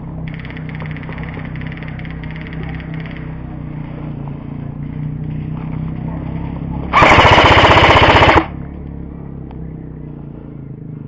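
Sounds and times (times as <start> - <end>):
airsoft rifle full-auto burst: 0.3 - 2.4, 6.9 - 8.5.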